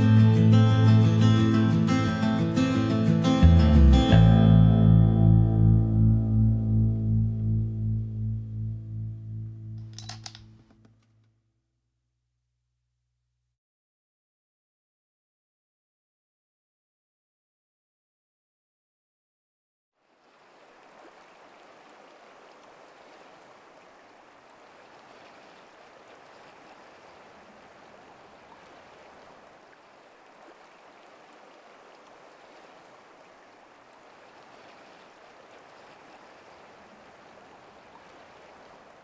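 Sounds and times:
stream flowing: 0.0 - 4.3, 20.0 - 39.0.

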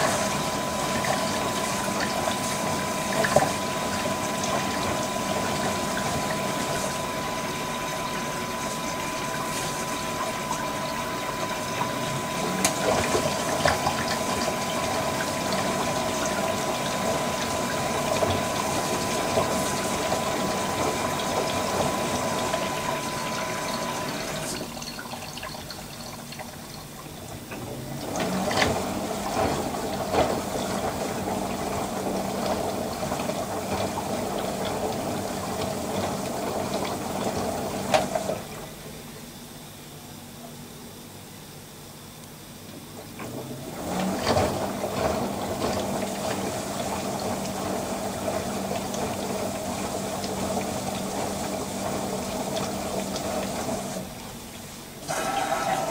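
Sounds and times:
duvet sloshing in drum: 0.0 - 26.0, 27.7 - 38.7
water rushing into washer: 0.0 - 40.0, 42.5 - 55.9.

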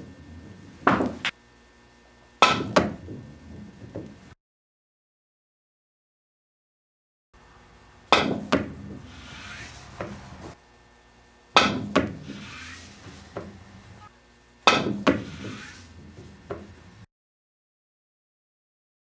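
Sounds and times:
cue striking ball: 0.0 - 1.3, 2.4 - 4.2, 8.1 - 10.6, 11.6 - 13.6, 14.7 - 16.7
pool ball knock: 0.0 - 1.3, 2.4 - 4.2, 8.1 - 9.1, 11.6 - 12.4, 13.3 - 13.6, 14.7 - 16.7
ball rolling on cloth: 2.7 - 4.3, 11.9 - 14.0.

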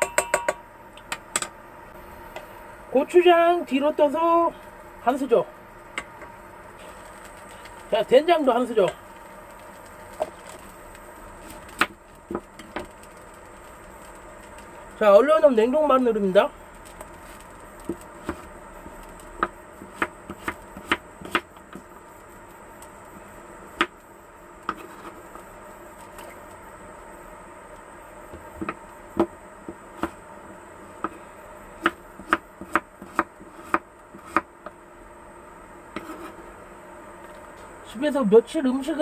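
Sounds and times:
knife chopping on wooden board: 19.4 - 21.5, 31.8 - 34.5.

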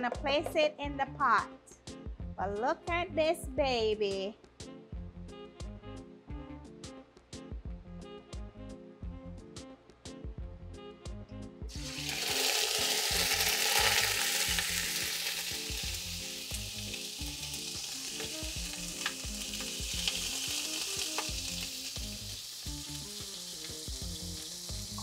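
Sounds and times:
soft guitar music: 11.0 - 25.0
meat sizzling in hot oil: 11.7 - 25.0.

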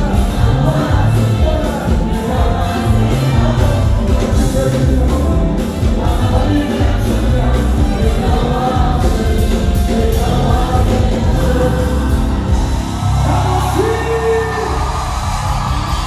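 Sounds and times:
live gospel music: 0.0 - 16.0.

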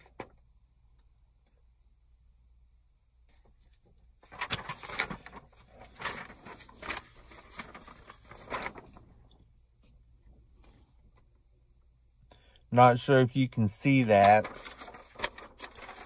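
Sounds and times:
paper rustling: 3.3 - 11.3, 13.8 - 16.0.

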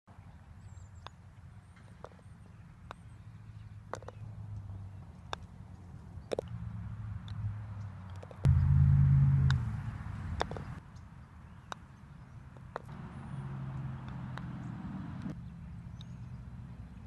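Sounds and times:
low rumble: 8.5 - 10.8
putter striking golf balls: 10.3 - 10.8.

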